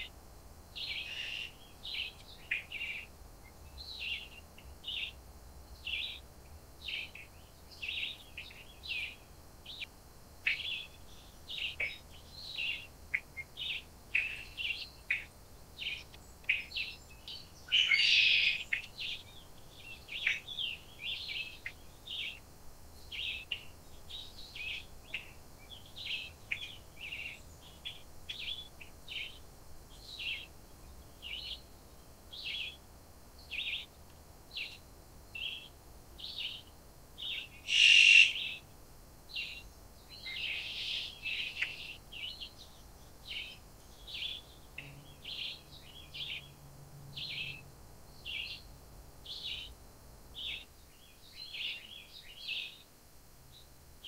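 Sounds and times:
birds chirping: 0.8s - 5.2s, 5.8s - 22.4s, 23.0s - 32.8s, 33.4s - 34.8s, 35.4s - 38.6s, 39.3s - 46.6s, 47.2s - 49.8s, 50.4s - 52.8s
loud bird call: 17.6s - 19.2s, 37.3s - 38.6s, 40.2s - 41.9s.

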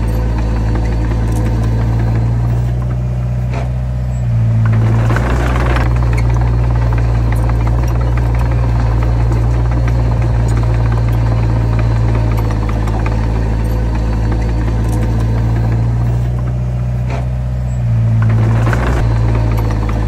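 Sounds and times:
heavy diesel engine under load: 0.0s - 20.0s.

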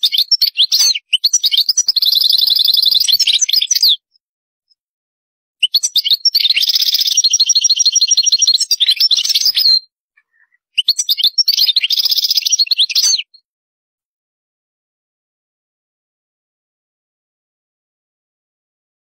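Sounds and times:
finch twittering trills: 0.0s - 4.1s, 5.6s - 13.4s.

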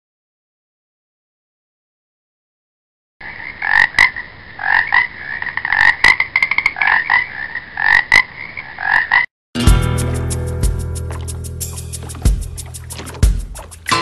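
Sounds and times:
frogs croaking: 3.2s - 9.3s
music: 9.6s - 14.0s.

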